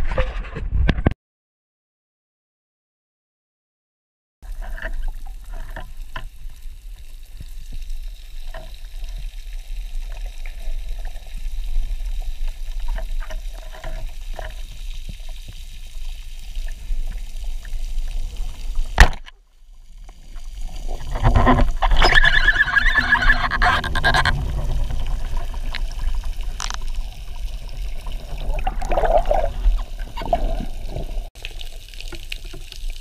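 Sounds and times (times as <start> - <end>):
small clicks and crackles: 4.5 - 33.0
low underwater rumble: 20.0 - 31.3.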